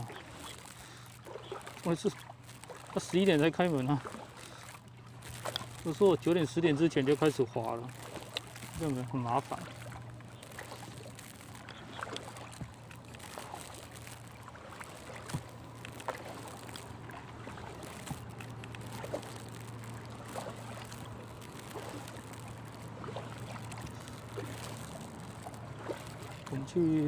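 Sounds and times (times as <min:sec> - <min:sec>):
paddle splashing water: 0:00.0 - 0:27.0
steady low hum: 0:00.0 - 0:27.0.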